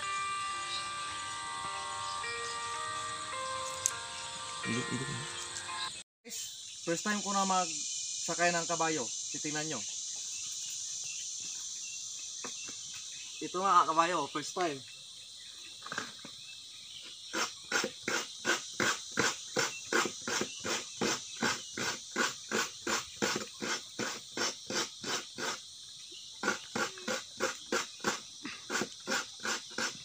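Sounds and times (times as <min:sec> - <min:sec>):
coconut grater rasping: 0:17.3 - 0:25.6, 0:26.4 - 0:30.0.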